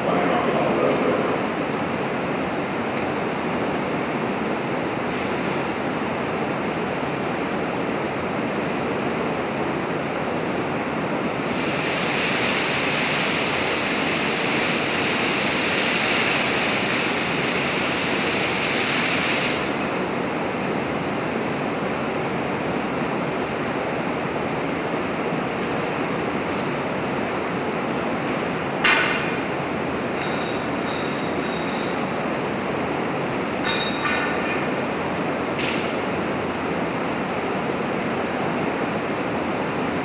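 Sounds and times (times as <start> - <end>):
spray burner hissing: 11.4 - 22.2.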